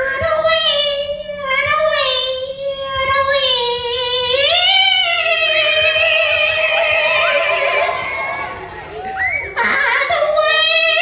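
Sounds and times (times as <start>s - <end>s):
high voice singing unaccompanied: 0.0s - 8.4s.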